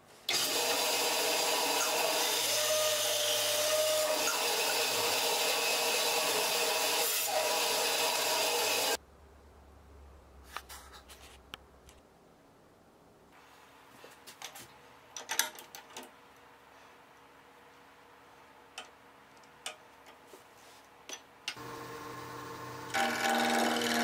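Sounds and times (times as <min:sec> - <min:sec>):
bandsaw cutting wood: 0:00.3 - 0:09.0, 0:21.8 - 0:24.0.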